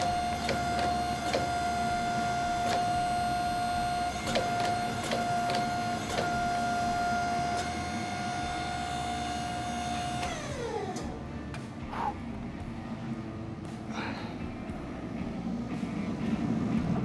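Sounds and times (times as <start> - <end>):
hydraulic pump whine: 0.0 - 12.1.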